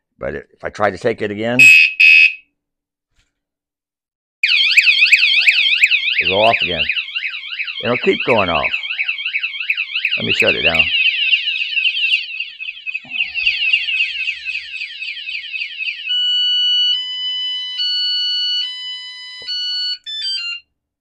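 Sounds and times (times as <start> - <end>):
alarm falling chirp: 1.6 - 2.4, 4.4 - 20.7
bicycle alarm warbling siren: 1.6 - 2.4, 4.4 - 20.7
alarm tones stepping in pitch: 4.4 - 20.6.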